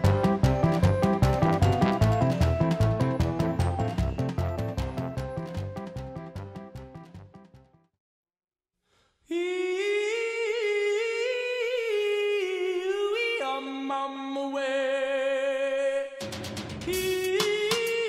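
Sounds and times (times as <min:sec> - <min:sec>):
music with drum beat: 0:00.0 - 0:07.0, 0:16.2 - 0:18.0.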